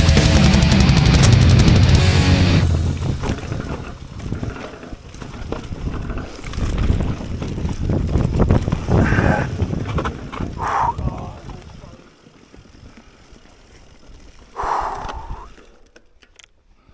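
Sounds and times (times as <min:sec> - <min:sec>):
bike tyre noise on dirt: 0:00.0 - 0:16.9
bike frame and chain rattling: 0:00.1 - 0:16.7.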